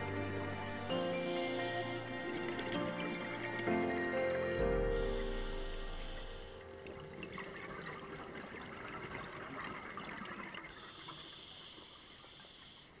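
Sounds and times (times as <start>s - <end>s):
underwater bubbling and crackling: 5.8s - 13.0s.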